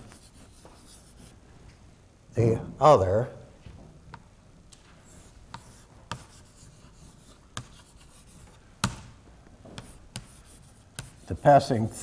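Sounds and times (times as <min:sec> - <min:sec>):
chalk scratching on a chalkboard: 0:00.0 - 0:01.4, 0:05.1 - 0:08.6, 0:09.8 - 0:11.8
chalk tapping on a board: 0:05.5 - 0:09.0, 0:09.7 - 0:11.4.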